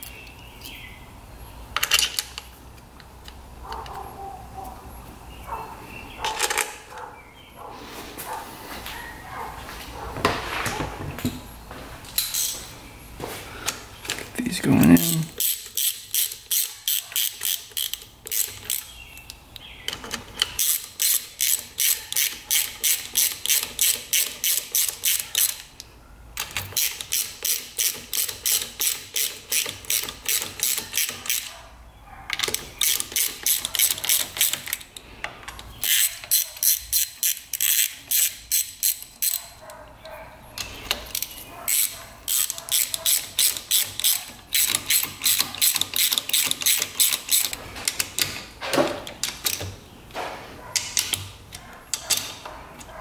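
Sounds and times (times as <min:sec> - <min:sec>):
ratchet wrench clicking: 0:15.3 - 0:18.9, 0:20.4 - 0:25.8, 0:26.4 - 0:31.5, 0:32.4 - 0:34.9, 0:35.8 - 0:39.6, 0:40.6 - 0:48.4.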